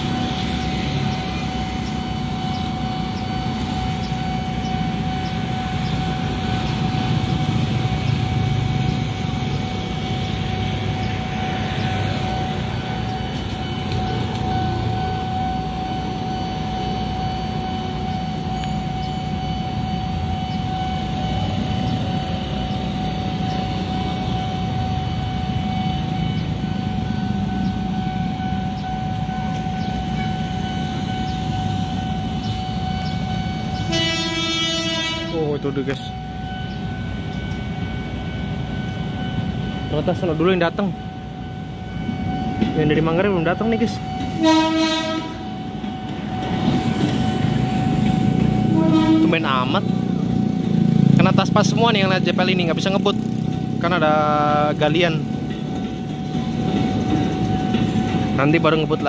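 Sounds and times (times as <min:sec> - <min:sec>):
crossing warning alarm tone: 0:00.0 - 0:59.0
vehicle horn: 0:33.8 - 0:35.4, 0:44.4 - 0:45.5, 0:48.7 - 0:49.5
motorbike engines running: 0:46.1 - 0:59.0.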